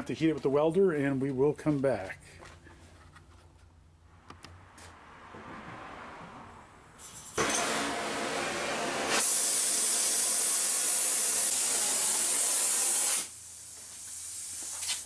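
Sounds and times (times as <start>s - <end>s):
welding torch hissing: 9.1s - 15.0s.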